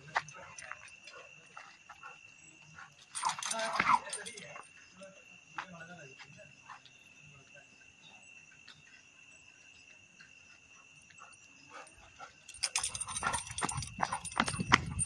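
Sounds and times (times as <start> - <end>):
metal chain rattling: 0.0 - 1.3, 2.0 - 4.8, 11.2 - 15.0
crickets chirring: 0.0 - 15.0
running footsteps: 10.6 - 15.0.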